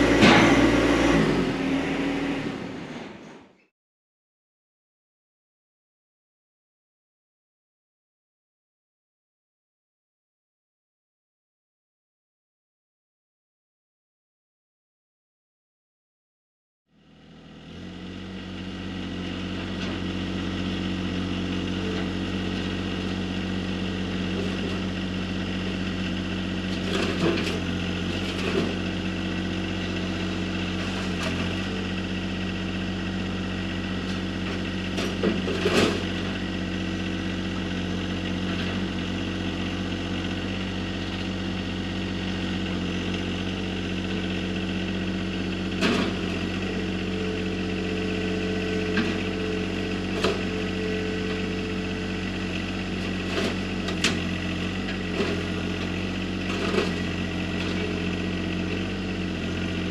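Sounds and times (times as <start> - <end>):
diesel tractor engine running: 0.0 - 3.4, 16.9 - 59.9.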